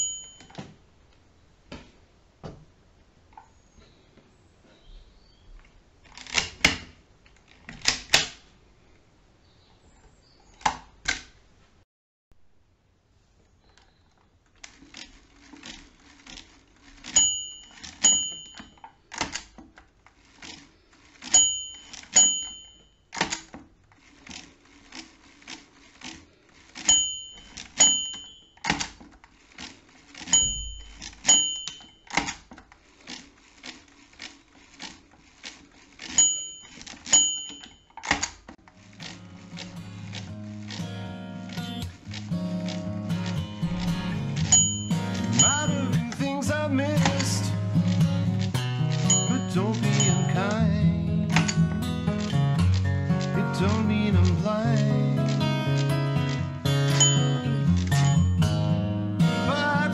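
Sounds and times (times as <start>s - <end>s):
small bell pinging: 0.0s - 0.6s, 17.2s - 18.8s, 21.3s - 23.0s, 26.9s - 28.6s, 30.4s - 32.0s, 36.2s - 37.9s, 44.5s - 45.8s
mechanical calculator gear clicks: 6.0s - 8.4s, 13.7s - 50.7s, 51.3s - 58.4s
calculator crank clacks: 14.6s - 50.6s.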